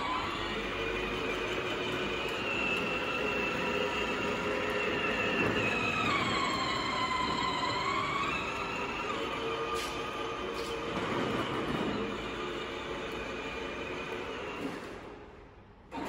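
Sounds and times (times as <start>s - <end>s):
electric motor whine: 0.0s - 11.0s
plastic wheels rolling on concrete: 0.0s - 15.1s.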